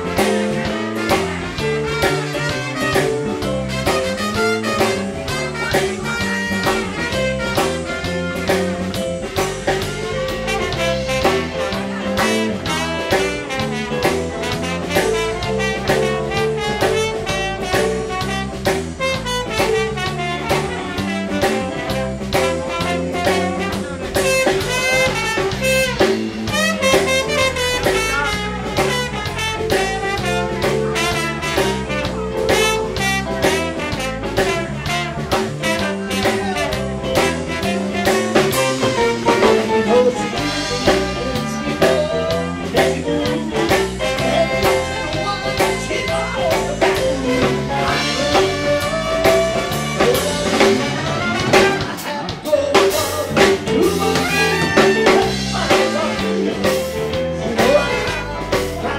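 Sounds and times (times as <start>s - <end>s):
blues band playing: 0.0s - 58.9s
drum kit steady beat: 0.0s - 58.9s.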